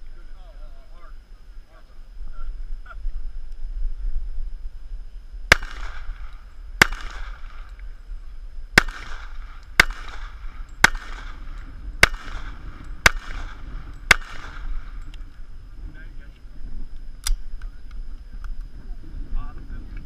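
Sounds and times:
pistol shots with echo: 0:05.5 - 0:07.9, 0:08.8 - 0:15.1.

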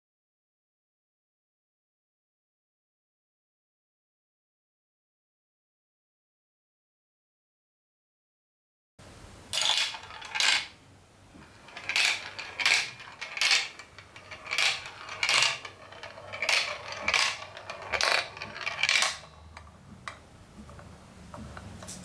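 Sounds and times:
ball rattling through plastic track: 0:09.5 - 0:10.8, 0:11.4 - 0:20.2.

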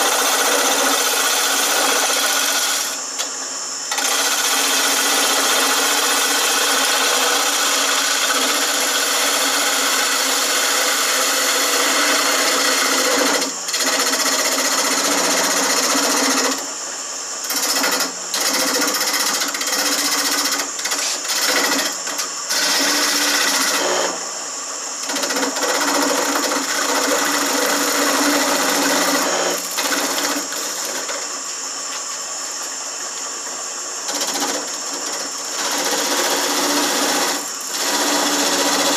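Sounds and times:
turning tool scraping spinning wood: 0:00.0 - 0:03.0, 0:17.5 - 0:23.9
lathe motor hum: 0:00.0 - 0:17.6.

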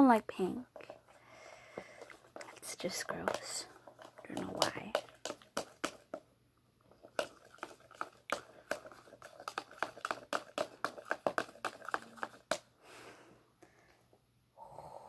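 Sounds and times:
utensil tapping against container: 0:01.7 - 0:06.2, 0:07.0 - 0:12.7.

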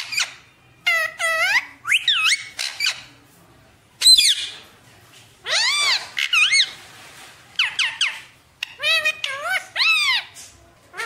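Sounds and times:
parakeet calls and squawks: 0:00.0 - 0:03.1, 0:04.0 - 0:04.6, 0:05.4 - 0:06.8, 0:07.6 - 0:11.0.

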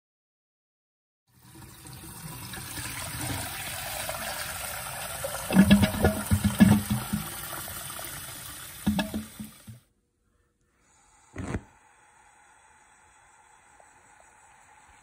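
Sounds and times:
faucet filling metal pot: 0:01.3 - 0:09.8.

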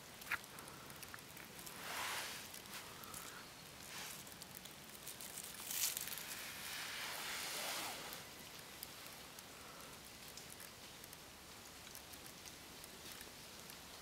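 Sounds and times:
dry leaves rustling and crackling: 0:00.0 - 0:14.0.

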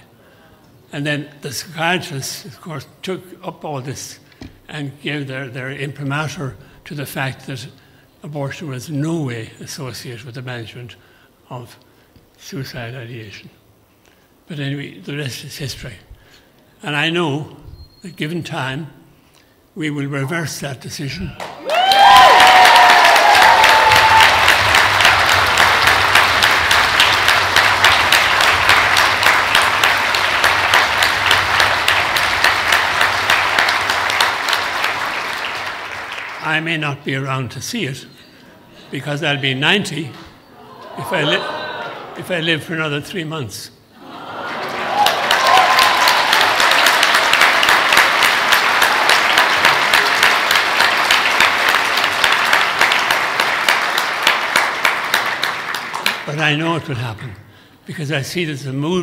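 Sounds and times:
audience applauding: 0:21.4 - 0:36.5, 0:44.1 - 0:56.4.

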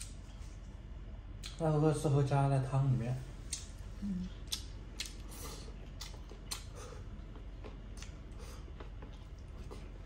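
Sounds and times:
chewing food: 0:03.5 - 0:10.0.

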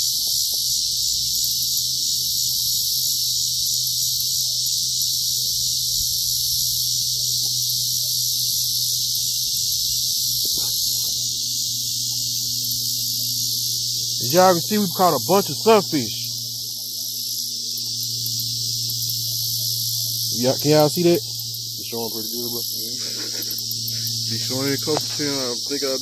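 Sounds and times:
insects chorus: 0:00.0 - 0:26.0.

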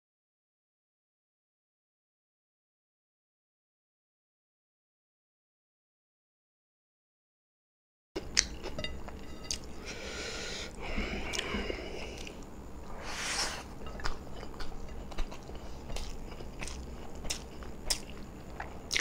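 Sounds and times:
mouth chewing food: 0:08.2 - 0:12.5, 0:13.2 - 0:19.0.

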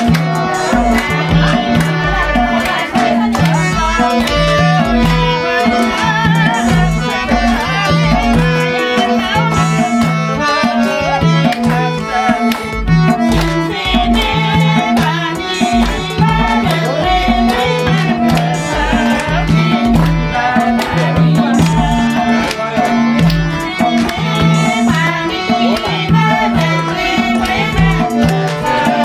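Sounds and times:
steady repeating drum beat: 0:00.0 - 0:29.0.

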